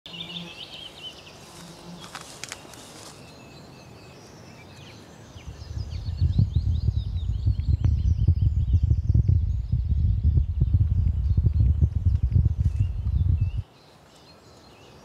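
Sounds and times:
birds chirping: 0.1 - 15.0
low pulsing rumble: 5.4 - 13.6.

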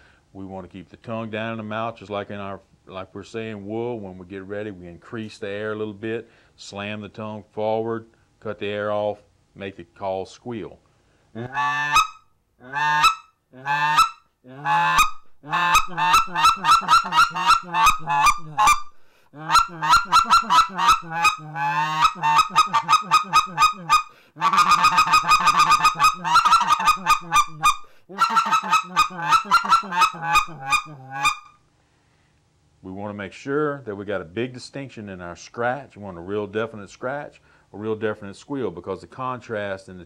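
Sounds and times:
goose call squealing: 11.4 - 31.6.

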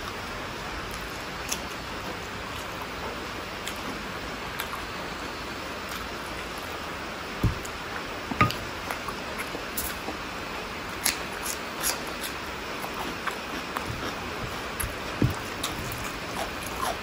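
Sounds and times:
steady hiss: 0.0 - 17.0
person chewing wetly: 3.6 - 5.2, 11.0 - 17.0
soft thumps: 7.4 - 7.7, 13.9 - 16.0.

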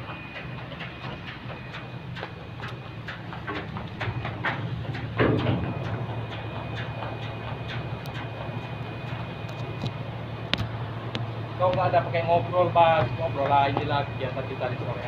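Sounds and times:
running feet on steel deck: 0.0 - 15.0
ship engine drone: 0.0 - 15.0
loud thump: 5.2 - 5.8.

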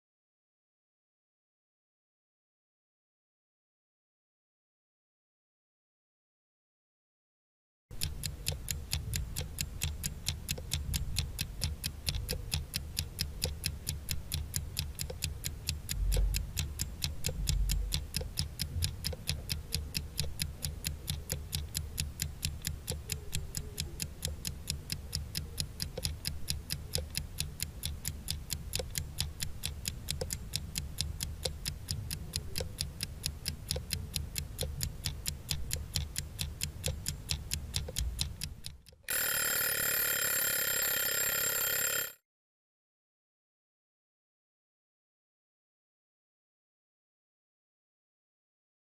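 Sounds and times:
clock ticking: 7.9 - 42.1.

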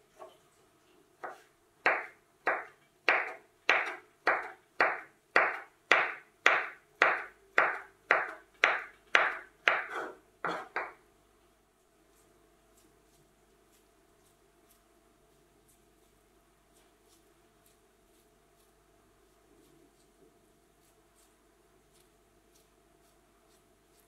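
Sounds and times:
knife chopping on wooden board: 1.2 - 11.0.

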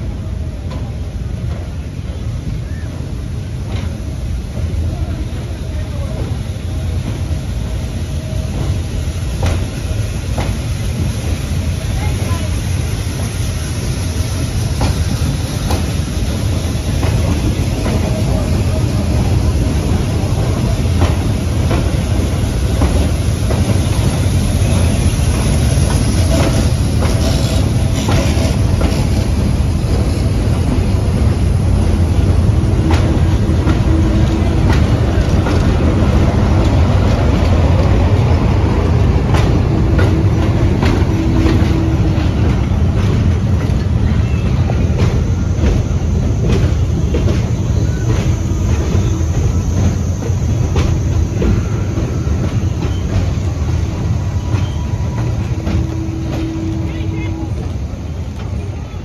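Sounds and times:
rail-joint clicks: 0.0 - 59.0
train wheels rumbling on rails: 0.0 - 59.0
faint wheel squeal: 51.5 - 53.5, 54.2 - 57.7.

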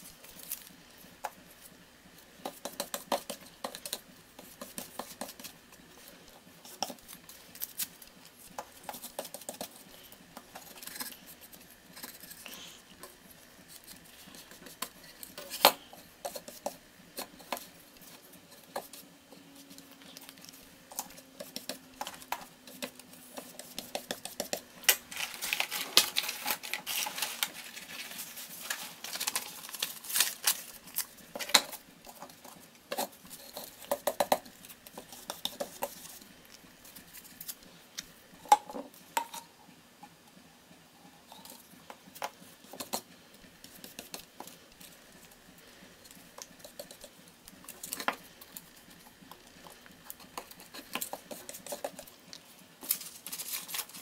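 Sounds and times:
brush tapping plastic pot: 2.4 - 5.6, 20.4 - 25.0
paper rustling and scraping: 17.2 - 33.8, 52.8 - 54.0.

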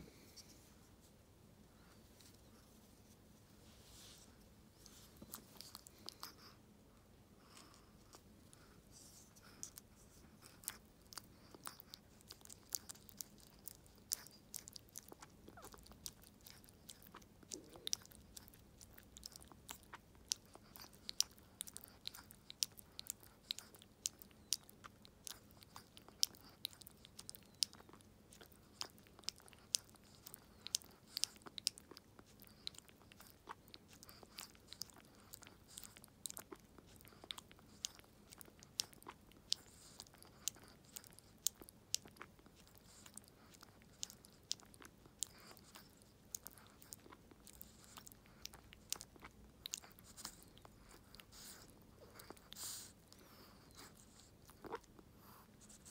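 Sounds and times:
dog licking and lip smacking: 7.4 - 55.9.

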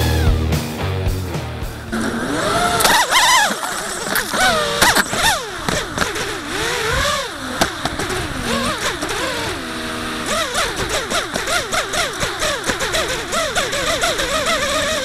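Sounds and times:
quadcopter motors whining: 1.7 - 15.0.

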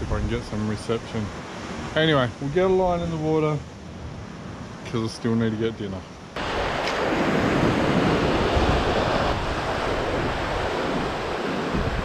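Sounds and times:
wind buffeting microphone: 0.0 - 4.9, 6.2 - 12.0
surf washing over rocks: 6.4 - 12.0.

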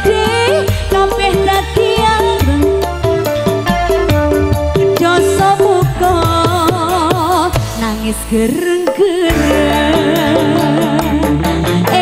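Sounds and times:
live band melody: 0.0 - 12.0
steady drum beat: 0.0 - 12.0.

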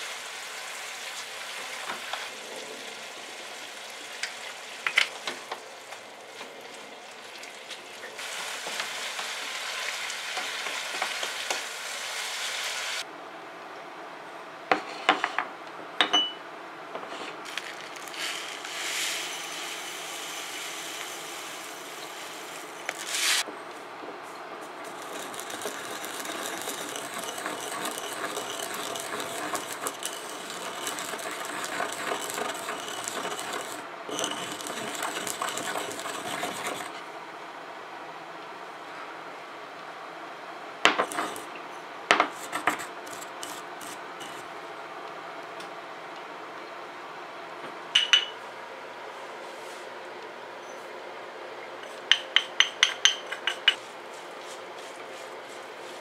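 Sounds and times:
pestle grinding seeds rasping: 17.4 - 23.4, 24.8 - 37.0, 40.9 - 41.5, 42.2 - 44.4
short scrape: 22.0 - 23.5, 42.3 - 44.4.

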